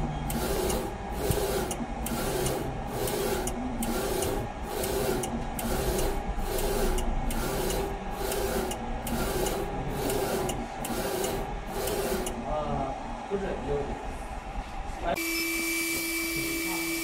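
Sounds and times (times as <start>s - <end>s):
printer carriage moving back and forth: 0.0s - 12.6s.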